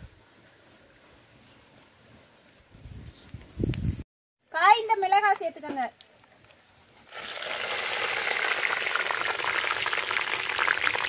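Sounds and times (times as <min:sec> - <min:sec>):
chillies sizzling in hot oil: 0:07.1 - 0:11.0.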